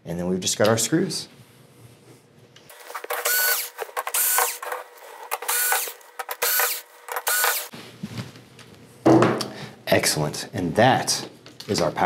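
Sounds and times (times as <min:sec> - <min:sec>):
cordless screwdriver motor whining: 0:03.0 - 0:07.7.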